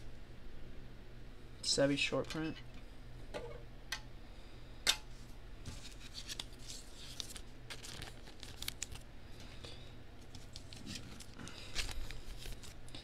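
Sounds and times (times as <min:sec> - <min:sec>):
cards rustling and shuffling: 0:05.6 - 0:13.0.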